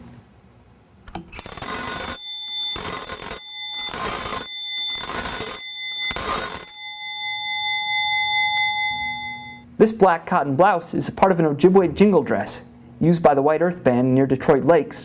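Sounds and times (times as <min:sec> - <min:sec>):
mechanical doorbell rattling ring: 0:01.2 - 0:09.6.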